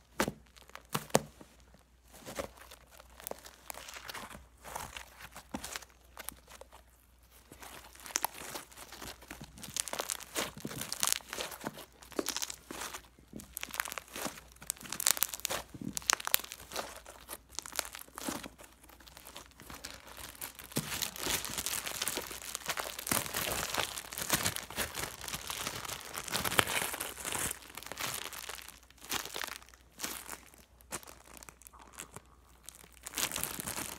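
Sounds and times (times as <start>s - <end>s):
slime clicking and crackling: 7.4s - 33.9s.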